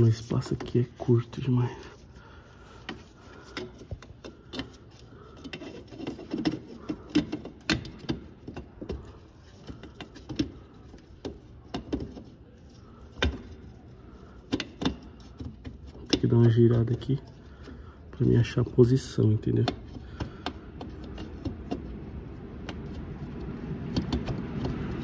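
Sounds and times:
plastic clicks knocks and scrapes: 0:02.8 - 0:13.8, 0:14.4 - 0:17.7, 0:19.4 - 0:25.0.

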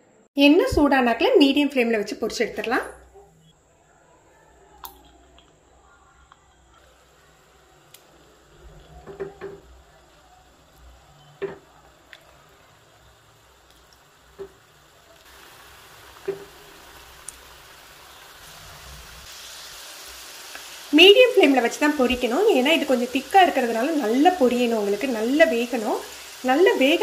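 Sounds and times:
oil sizzling: 0:06.6 - 0:27.0.

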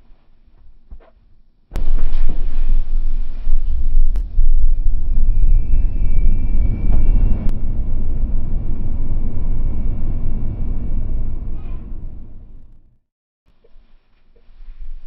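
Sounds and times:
tyre and road noise rumble: 0:01.8 - 0:13.0.

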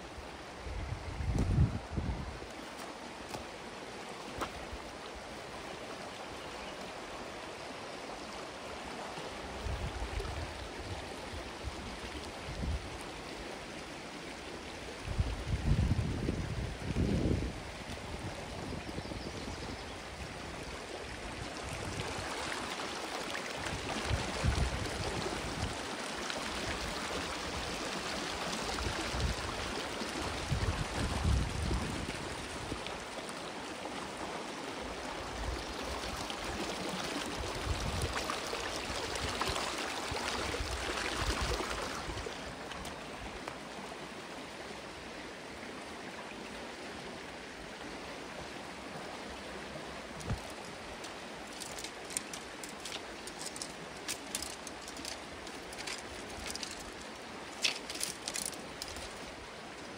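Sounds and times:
wind rumble on microphone: 0:00.6 - 0:02.5, 0:09.5 - 0:13.0, 0:15.0 - 0:22.4, 0:23.6 - 0:25.8, 0:28.7 - 0:33.0, 0:37.4 - 0:38.2
water rushing over rocks: 0:01.3 - 0:18.8, 0:20.0 - 0:59.9.

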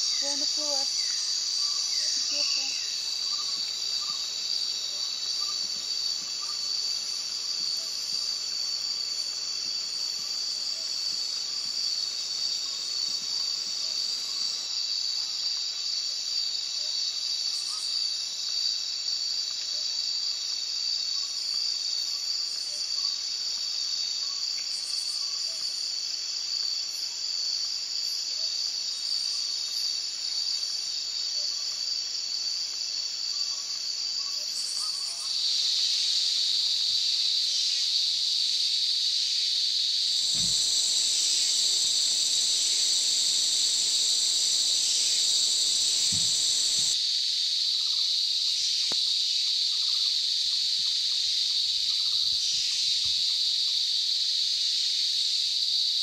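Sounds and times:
insects shrilling: 0:00.0 - 0:15.0, 0:31.7 - 0:47.0.

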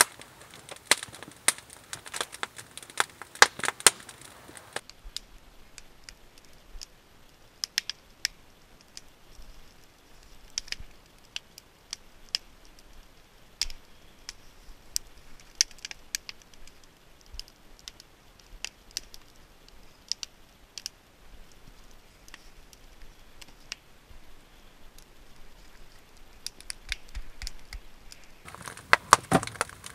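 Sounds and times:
sharp pops: 0:00.0 - 0:04.9, 0:28.5 - 0:29.9
campfire crackling: 0:00.0 - 0:29.9.

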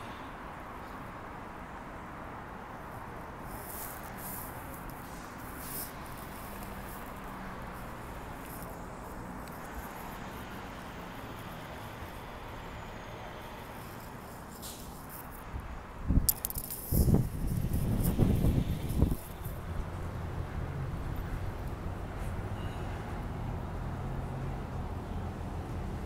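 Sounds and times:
city street traffic: 0:00.0 - 0:26.0
wind buffeting microphone: 0:15.5 - 0:21.9
sharp click: 0:16.2 - 0:17.2.

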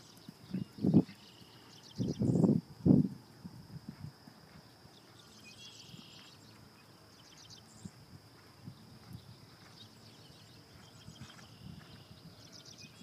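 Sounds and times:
birds chirping: 0:00.0 - 0:02.5, 0:04.6 - 0:13.0
horse hoofbeats on sand: 0:07.8 - 0:13.0.

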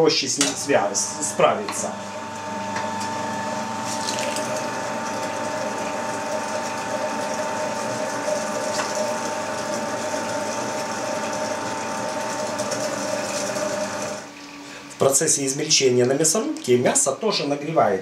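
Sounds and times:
electric meat grinder whine: 0:00.4 - 0:14.6.

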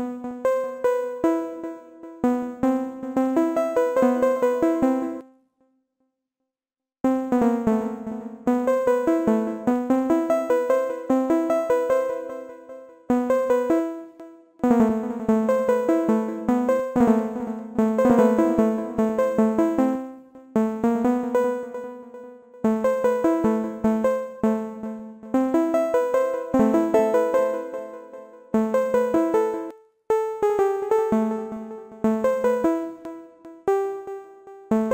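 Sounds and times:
synthesizer plucked arpeggio: 0:14.6 - 0:20.0, 0:25.7 - 0:29.7.

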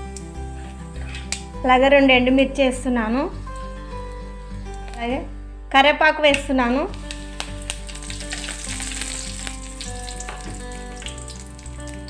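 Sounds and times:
spices sizzling and popping in oil: 0:06.4 - 0:12.0.

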